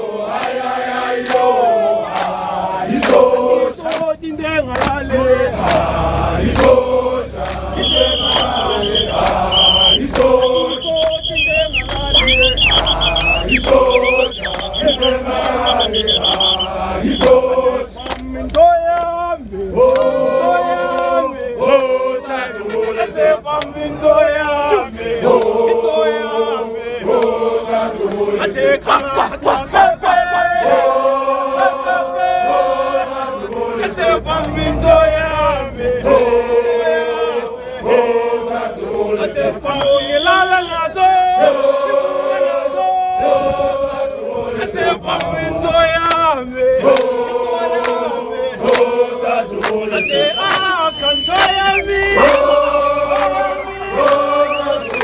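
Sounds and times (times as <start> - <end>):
crowd singing in chorus: 0.0 - 55.0
hand claps: 0.3 - 0.6, 1.2 - 1.5, 2.1 - 2.4, 3.0 - 5.0, 5.6 - 5.9, 7.4 - 16.6, 18.0 - 19.2, 19.8 - 20.2, 25.3 - 25.6, 46.0 - 46.3, 46.9 - 47.2, 47.8 - 55.0.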